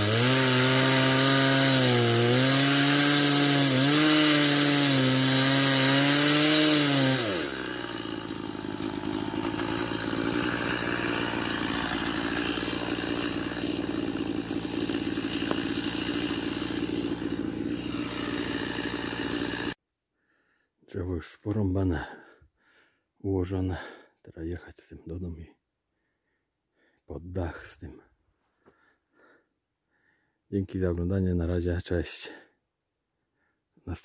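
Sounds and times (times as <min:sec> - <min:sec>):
chainsaw cutting log: 0:00.0 - 0:19.8
chainsaw idling: 0:00.0 - 0:19.8.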